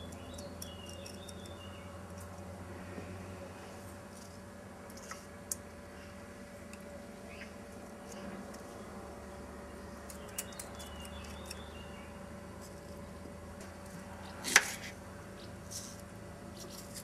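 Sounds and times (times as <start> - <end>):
faint bird chirps: 0.0 - 2.0
steady low hum: 0.0 - 17.0.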